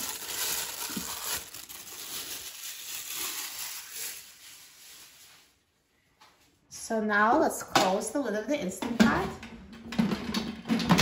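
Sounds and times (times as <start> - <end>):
plastic glove crinkling: 0.0 - 5.9.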